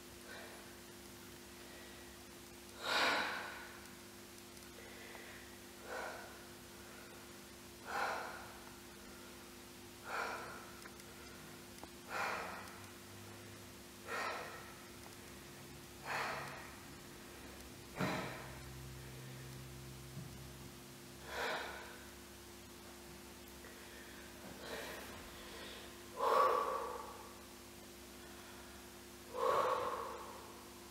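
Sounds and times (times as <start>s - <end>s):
low electrical hum: 0.0s - 30.9s
person breathing hard: 0.2s - 0.8s, 1.5s - 3.9s, 4.7s - 19.6s, 21.2s - 22.2s, 23.6s - 27.5s, 28.1s - 30.9s
sharp gasping breaths: 4.8s - 9.4s, 10.0s - 11.4s, 12.1s - 12.9s, 14.0s - 14.9s, 16.0s - 16.8s, 28.2s - 30.6s.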